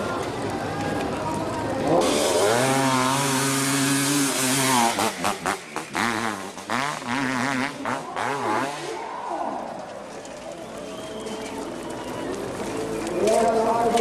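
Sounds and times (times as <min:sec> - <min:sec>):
motorcycle engine revving: 0:01.7 - 0:09.0.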